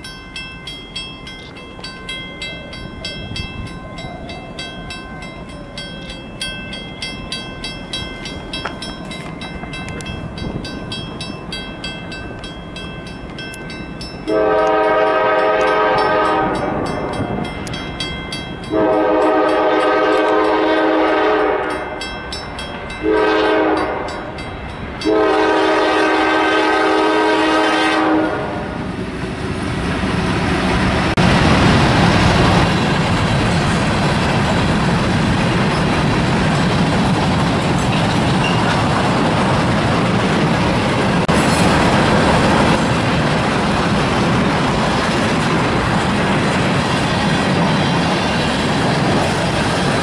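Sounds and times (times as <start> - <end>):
crossing signal bell ringing: 0.0 - 25.7, 38.2 - 38.9
train wheels rolling: 0.0 - 50.0
locomotive air horn blasts: 14.3 - 17.2, 18.7 - 22.0, 23.0 - 24.4, 25.0 - 28.9.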